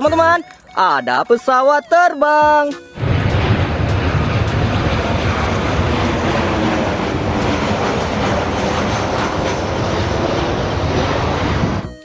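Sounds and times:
jet airliner flying overhead: 2.9s - 12.0s.

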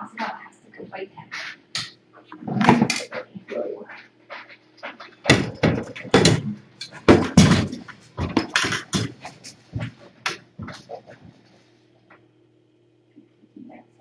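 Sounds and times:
knocks clicks and thumps: 4.8s - 11.0s.

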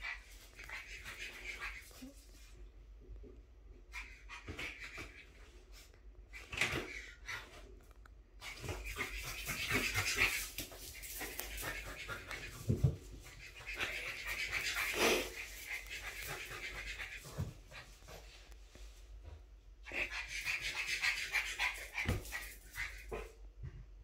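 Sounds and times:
clicks and rustles on tile floor: 5.8s - 14.0s.

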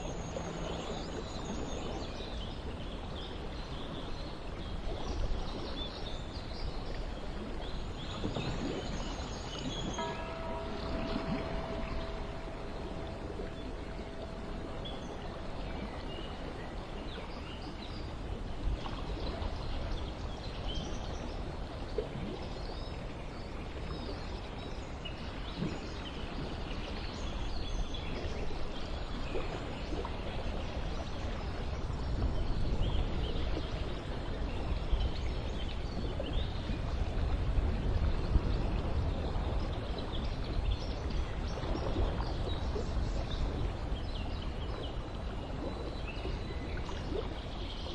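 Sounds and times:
running water: 0.0s - 47.9s
birds chirping: 8.6s - 18.2s
low rumble: 10.0s - 18.4s.

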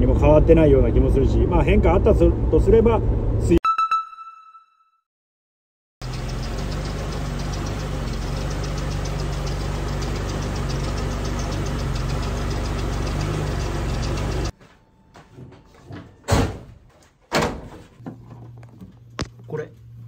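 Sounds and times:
car engine idling: 6.0s - 14.5s.

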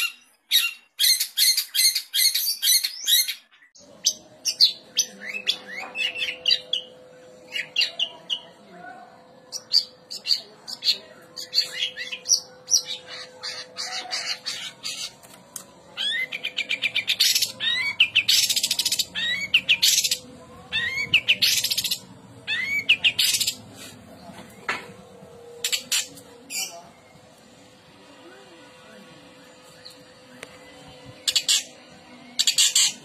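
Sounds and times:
bird singing whistles and chatter: 16.0s - 23.6s.

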